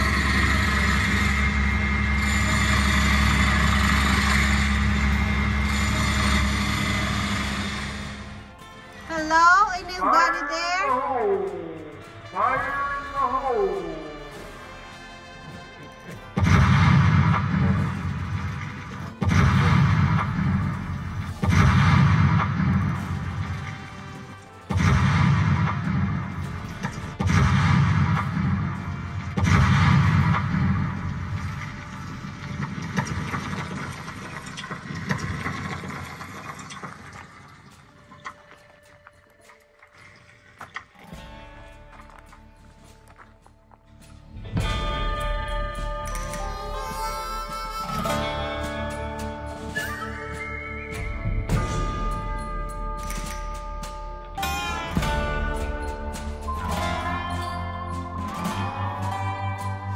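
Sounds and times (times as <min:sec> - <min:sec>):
mechanical rumble with hum: 0:00.0 - 0:08.4
explosion booms over loudspeakers: 0:16.4 - 0:23.6, 0:24.7 - 0:36.0.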